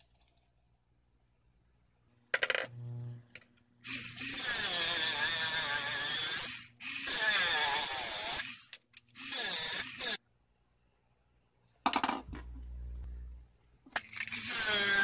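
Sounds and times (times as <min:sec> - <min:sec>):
short low motor hum: 0:12.5 - 0:13.4.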